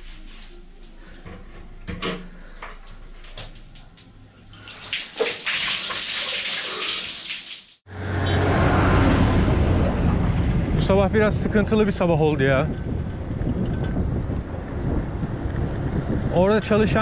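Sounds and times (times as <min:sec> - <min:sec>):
water pouring onto concrete floor: 0:00.0 - 0:01.2, 0:02.3 - 0:07.8
water drips and small splashes: 0:00.0 - 0:07.8.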